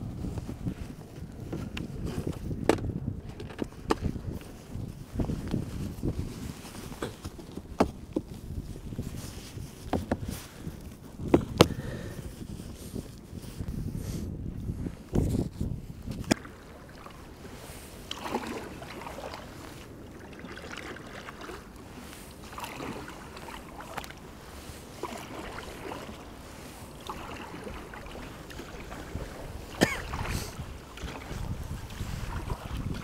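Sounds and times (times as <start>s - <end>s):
wind rumble on microphone: 0.0s - 33.0s
kayak paddle splashing in water: 16.1s - 33.0s.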